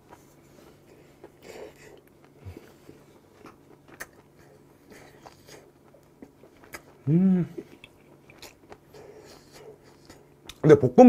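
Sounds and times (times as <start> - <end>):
man chewing food: 0.0 - 10.7
man saying mmm: 7.0 - 7.7.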